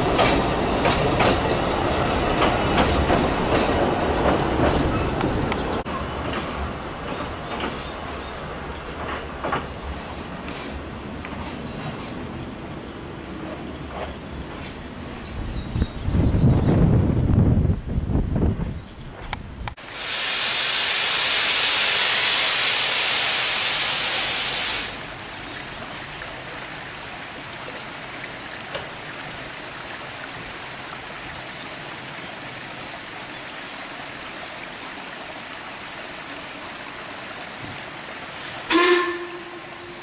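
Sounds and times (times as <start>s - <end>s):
stream running: 0.0s - 16.1s, 19.7s - 40.0s
steam locomotive hissing: 19.8s - 25.1s
steam whistle blast: 38.7s - 40.0s.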